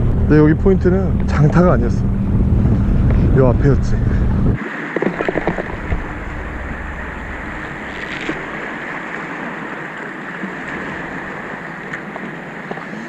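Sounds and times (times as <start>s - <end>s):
wind: 0.0s - 13.0s
waves washing over rocks: 4.6s - 13.0s.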